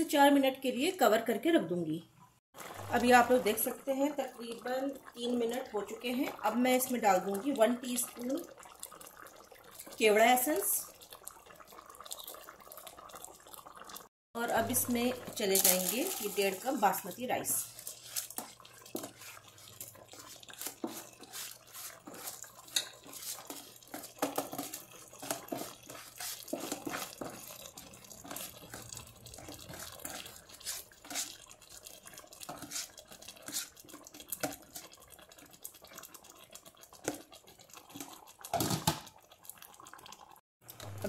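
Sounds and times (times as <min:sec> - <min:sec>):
rice poured into pot: 0:15.1 - 0:33.8.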